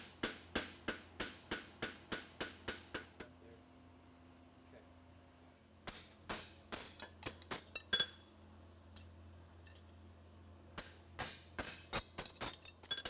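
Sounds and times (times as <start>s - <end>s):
hammer striking horseshoe on anvil: 0.0s - 3.3s, 5.8s - 8.3s, 10.8s - 13.0s.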